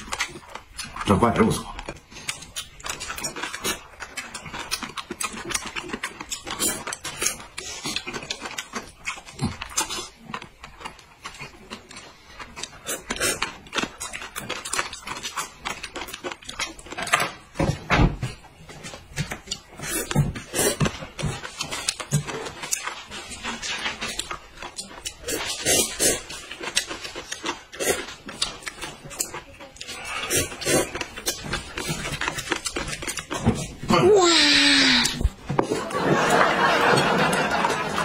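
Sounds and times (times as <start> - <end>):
people slurping noodles: 12.7 - 13.6, 19.7 - 21.9, 25.1 - 28.2, 29.8 - 38.0.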